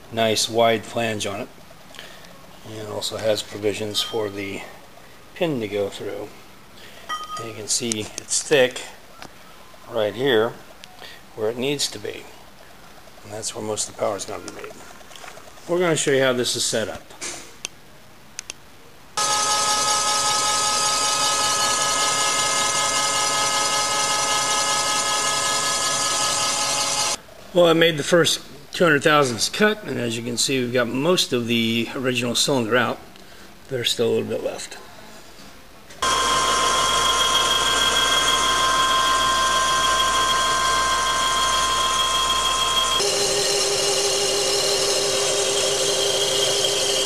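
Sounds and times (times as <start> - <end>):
milling machine whine: 19.2 - 27.2, 36.0 - 47.0.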